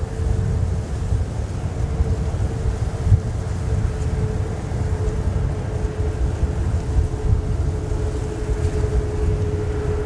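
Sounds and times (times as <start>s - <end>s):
jet engines rumbling: 0.0s - 10.0s.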